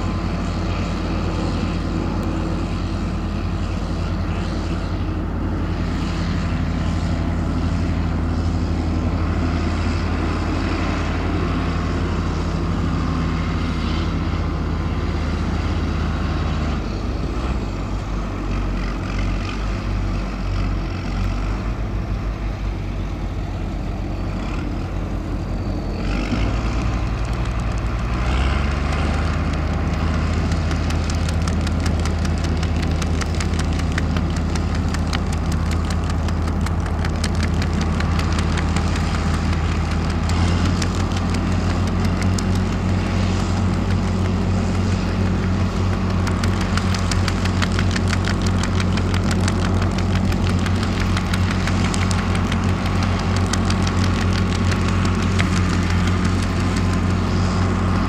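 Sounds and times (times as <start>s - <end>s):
tractor diesel engine running: 0.0s - 58.0s
rapid clatter: 26.1s - 58.0s.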